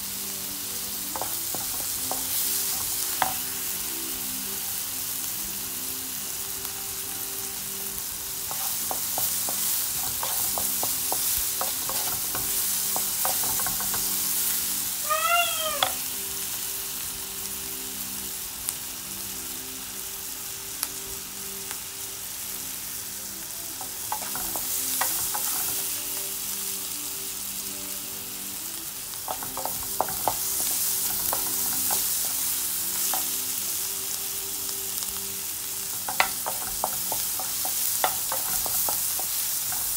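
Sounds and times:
onions sizzling in oil: 0:00.0 - 0:39.9.

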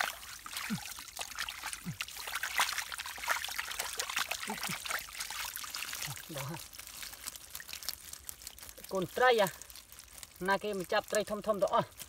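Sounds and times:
mud slopping and squelching: 0:00.0 - 0:12.0
water trickling: 0:00.0 - 0:12.0.

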